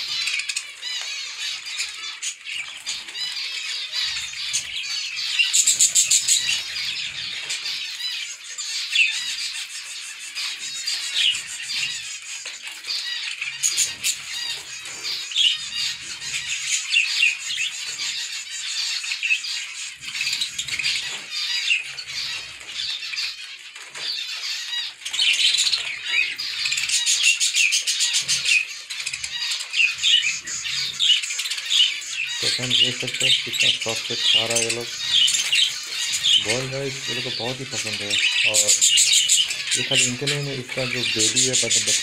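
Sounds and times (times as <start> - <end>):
finches calling: 0.0 - 12.2, 24.1 - 42.0.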